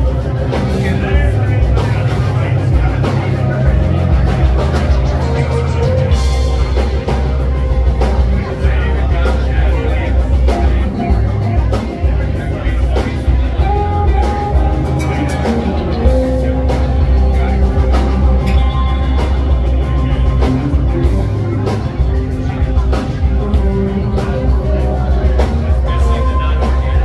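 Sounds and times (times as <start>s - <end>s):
live rock band: 0.0s - 27.0s.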